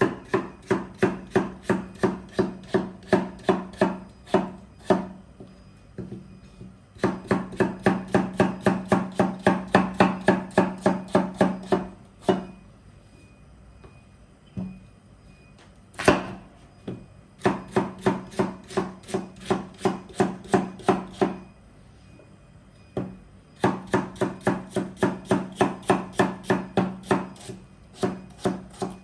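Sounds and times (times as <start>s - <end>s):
knife chopping potatoes on wood: 0.0s - 5.1s, 7.0s - 12.5s, 17.4s - 21.4s, 23.6s - 29.0s.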